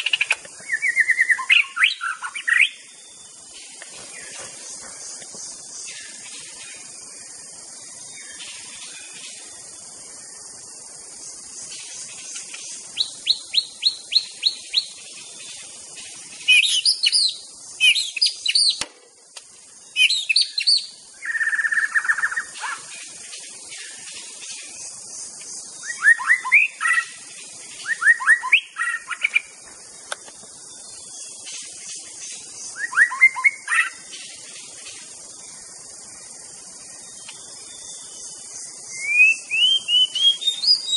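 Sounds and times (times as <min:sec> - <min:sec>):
songbird singing whistled phrases: 0:00.0 - 0:03.2, 0:12.9 - 0:15.0, 0:16.4 - 0:18.8, 0:20.0 - 0:22.9, 0:25.8 - 0:27.2, 0:27.8 - 0:29.5, 0:32.7 - 0:34.0, 0:38.8 - 0:40.9
steady high hiss: 0:00.0 - 0:40.9.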